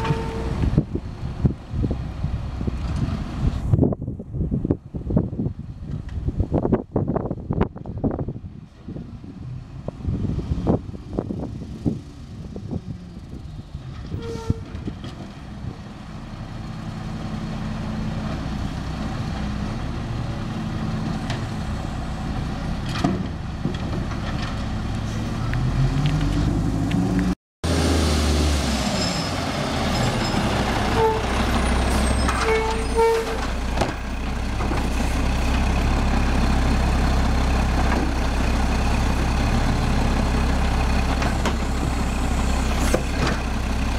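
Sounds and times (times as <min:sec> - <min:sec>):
diesel truck engine revving: 0:14.9 - 0:43.9
hydraulic arm squeaks: 0:31.8 - 0:33.4.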